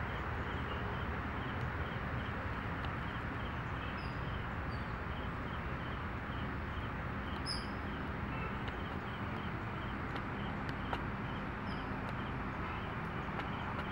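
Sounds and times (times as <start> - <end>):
faint bird chirp: 3.0 - 13.9.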